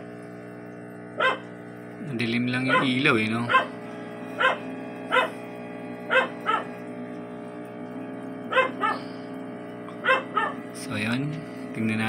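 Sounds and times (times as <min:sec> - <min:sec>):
steady hum: 0:00.0 - 0:12.0
dog barking: 0:01.2 - 0:01.5, 0:02.6 - 0:03.8, 0:04.4 - 0:05.4, 0:06.1 - 0:06.7, 0:08.5 - 0:09.1, 0:10.0 - 0:10.6.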